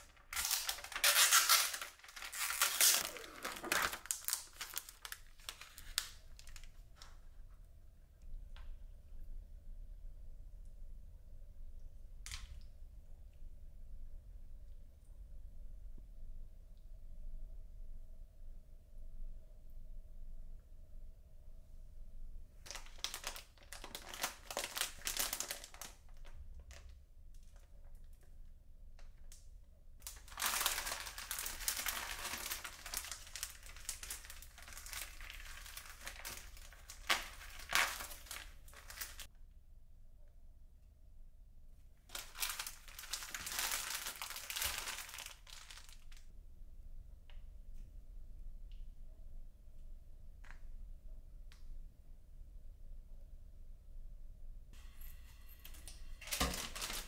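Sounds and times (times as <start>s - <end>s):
crinkling and rustling: 0.0s - 7.4s, 22.7s - 28.3s, 30.0s - 39.3s, 42.1s - 46.3s, 55.0s - 57.0s.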